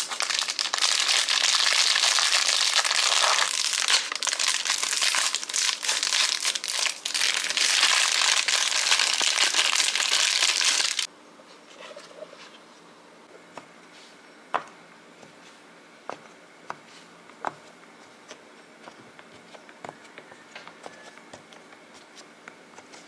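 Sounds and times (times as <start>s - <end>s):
plastic wrapper crinkling: 0.0s - 11.1s.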